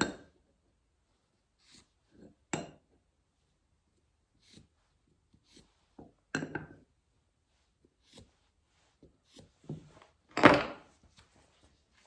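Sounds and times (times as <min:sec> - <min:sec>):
tools knocking and clattering: 0:10.3 - 0:10.9.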